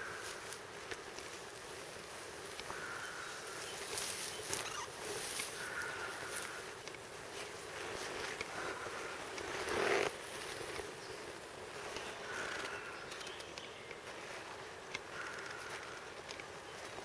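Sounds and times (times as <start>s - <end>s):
grass rustling: 0.0s - 17.0s
protective suit rustling: 3.8s - 12.6s.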